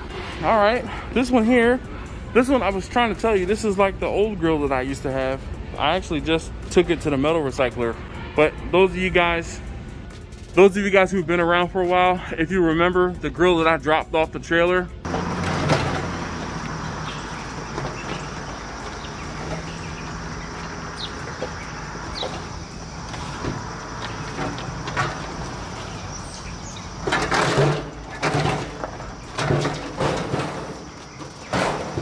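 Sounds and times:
outdoor background noise: 0.0 - 32.0
loud knocks and rattles: 15.1 - 22.6, 23.4 - 25.6, 27.0 - 32.0
metal grill clanking and scraping: 15.1 - 32.0.

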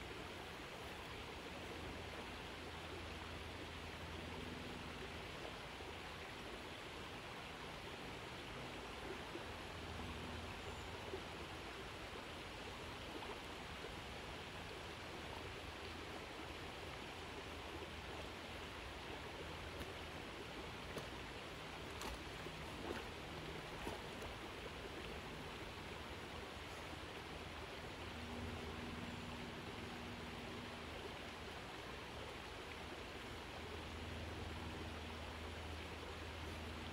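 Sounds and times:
creek water running: 0.0 - 36.9
dog paddling splashes: 21.8 - 25.3.

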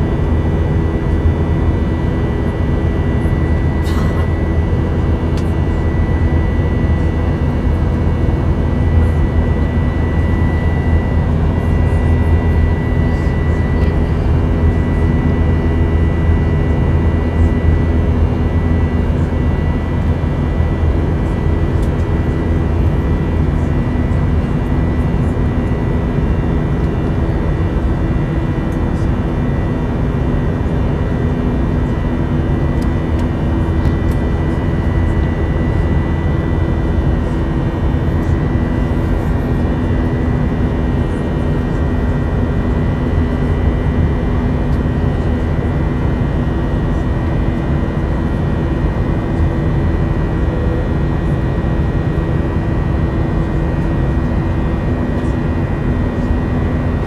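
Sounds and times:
airliner cabin engine drone: 0.0 - 57.0.

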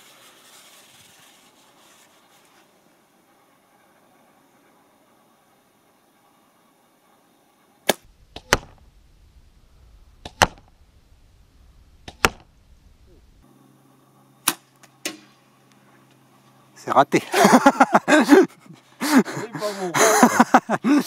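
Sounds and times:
arrow striking target: 7.8 - 8.8, 10.2 - 10.8, 12.0 - 12.5, 14.4 - 15.4.

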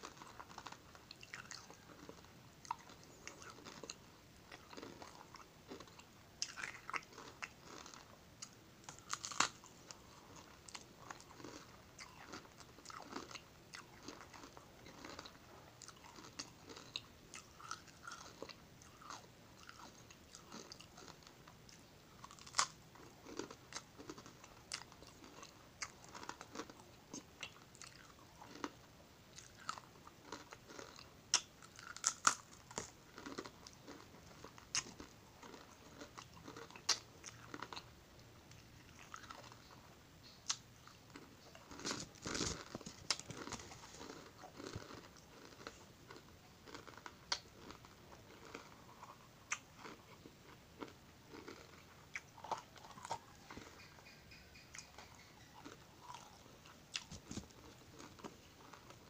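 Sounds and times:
biscuit crunching while chewing: 0.0 - 59.0.

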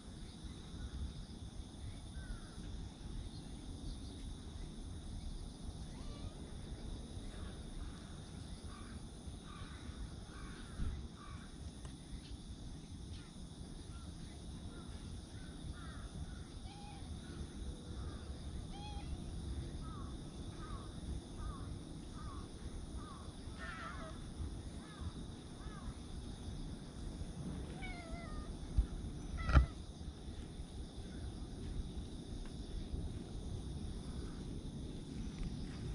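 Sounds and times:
high insect drone: 0.0 - 35.9
thump: 28.8 - 29.8.

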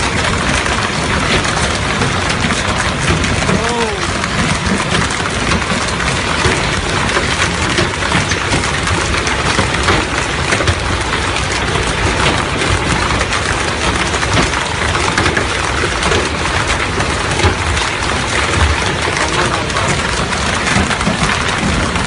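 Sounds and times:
torrential rain: 0.0 - 22.0.

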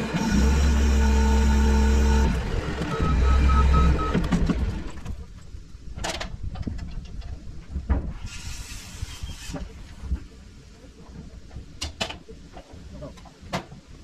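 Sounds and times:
short hiss: 8.1 - 9.9.

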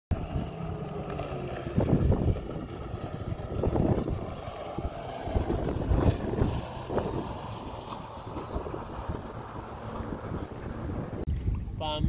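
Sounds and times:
jet ski engine drone: 0.1 - 12.0
wind buffeting microphone: 0.1 - 12.0.

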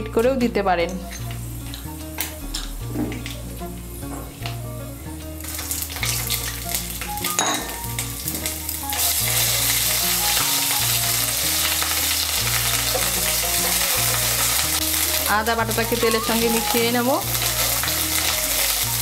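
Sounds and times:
paste sizzling in hot oil: 5.4 - 19.0.

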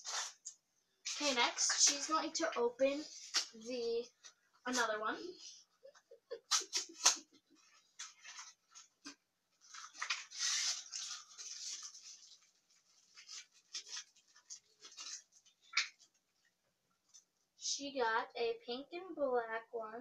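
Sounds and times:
plastic packaging crackling: 6.4 - 16.4.

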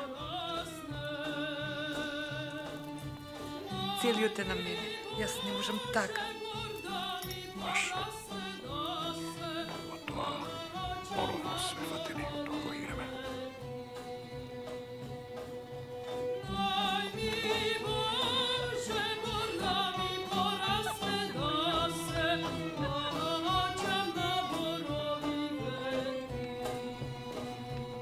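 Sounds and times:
instrumental accompaniment: 0.0 - 28.0
person singing with vibrato: 3.6 - 13.8, 16.4 - 26.0.

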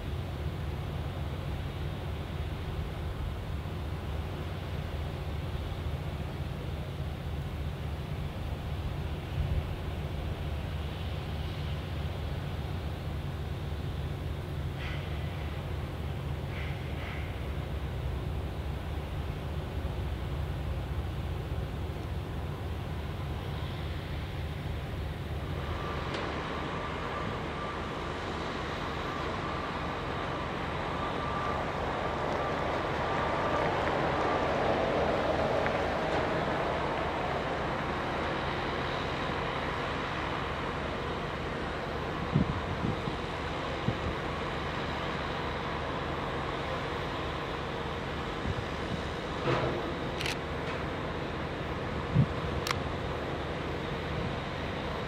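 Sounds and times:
low rumble and hiss outdoors: 0.0 - 55.0
faint click: 52.6 - 52.8.

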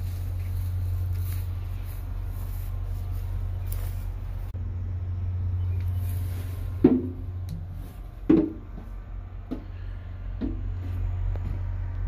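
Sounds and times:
steady low rumble: 0.0 - 12.0
footsteps on metal steps: 6.7 - 12.0.

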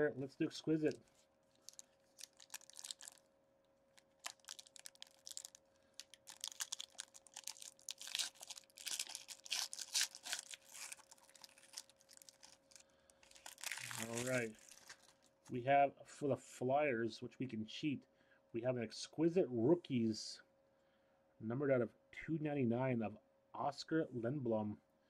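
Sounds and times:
foil pack crinkling and tearing: 0.9 - 3.2, 3.9 - 15.5.

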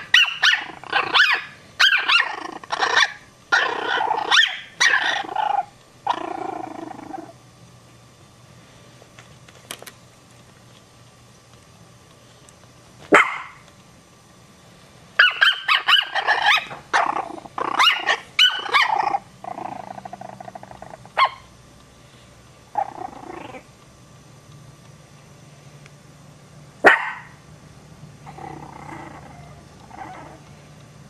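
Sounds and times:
small dogs barking: 0.0 - 7.3, 13.1 - 13.6, 15.2 - 21.5, 26.8 - 27.4
dog growling: 0.6 - 1.3, 2.0 - 7.4, 16.2 - 21.2, 22.7 - 23.7, 28.2 - 30.5.

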